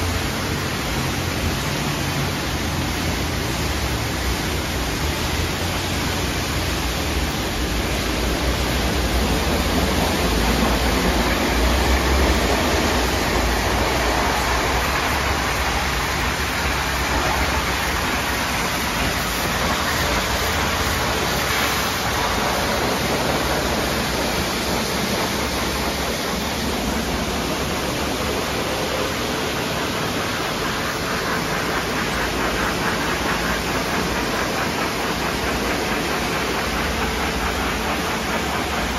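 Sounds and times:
spinning wash brushes: 0.0s - 38.9s
spraying water: 0.0s - 38.9s.

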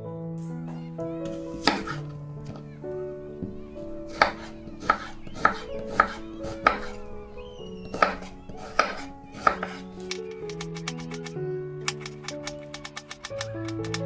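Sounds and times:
soft background music: 0.0s - 14.0s
knife chopping on wooden board: 1.3s - 2.6s, 3.4s - 7.0s, 7.8s - 10.2s.

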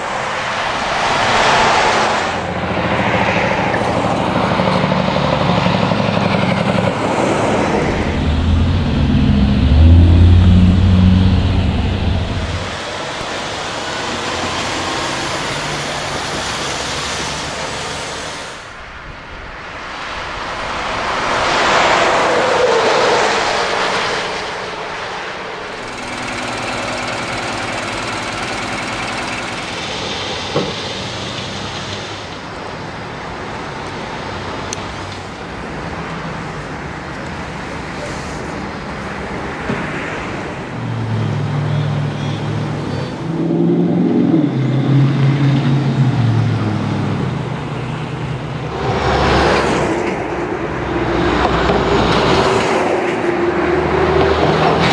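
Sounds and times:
truck passing: 0.0s - 19.0s, 19.6s - 54.9s
truck engine running: 2.4s - 17.8s, 25.6s - 32.7s.

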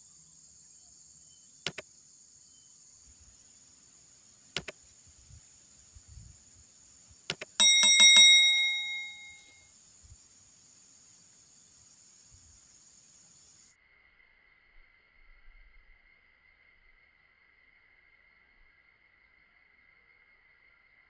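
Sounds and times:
high insect drone: 0.0s - 21.0s
sharp mouse clicks: 4.6s - 4.8s
small notification bell ringing: 7.6s - 9.5s.

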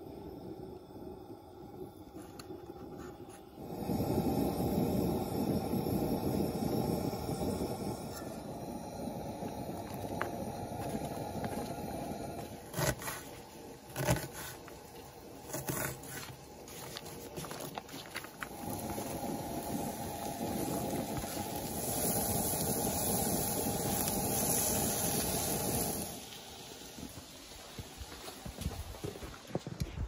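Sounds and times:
wooden spatula knocking and scraping: 12.7s - 18.4s
food sizzling in a skillet: 18.6s - 28.6s.

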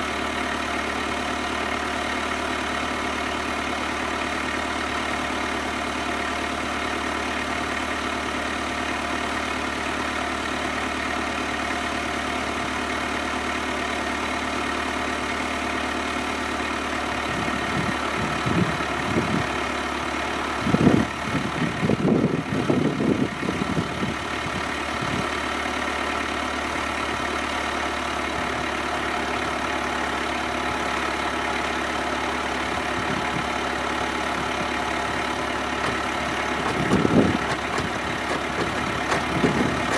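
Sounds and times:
tractor diesel engine running: 0.0s - 39.9s
heavy clunking: 35.2s - 39.9s.

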